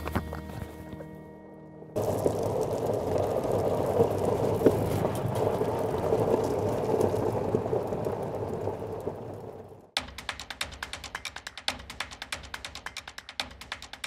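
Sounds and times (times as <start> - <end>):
tyre and road noise: 1.9 - 10.0.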